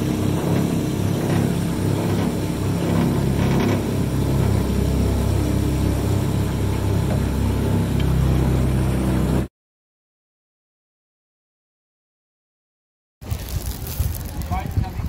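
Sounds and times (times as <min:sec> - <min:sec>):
motorboat engine running: 0:00.0 - 0:09.5.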